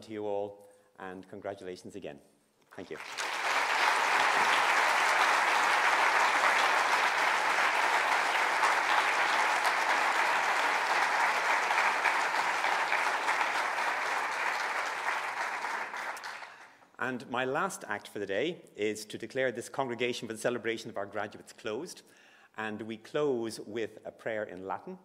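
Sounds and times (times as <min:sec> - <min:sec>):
audience applauding: 0:02.8 - 0:16.7.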